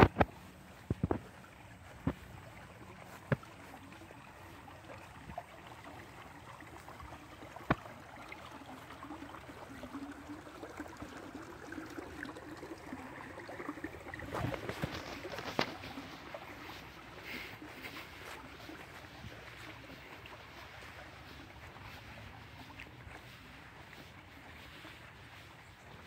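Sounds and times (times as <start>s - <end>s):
creek water running over stones: 0.0s - 26.0s.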